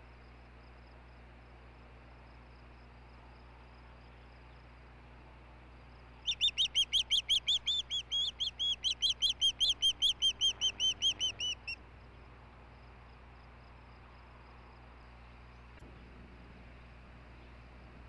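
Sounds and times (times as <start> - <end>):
bird high whistled chirps: 6.2 - 11.8.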